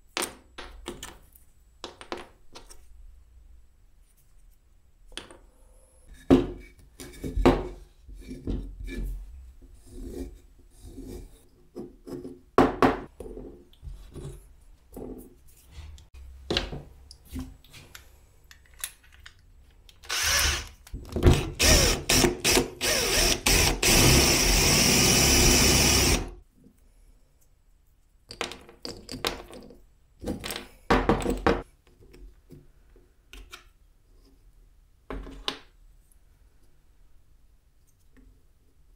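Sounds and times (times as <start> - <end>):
electric drill drilling: 20.1 - 20.7, 21.6 - 26.4.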